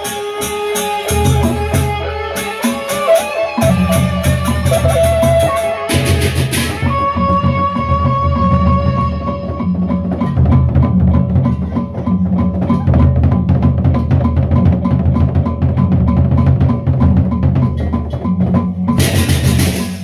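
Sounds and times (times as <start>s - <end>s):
hand cymbals clashing: 0.0s - 6.9s, 18.9s - 20.0s
barrel drums beating: 0.0s - 20.0s.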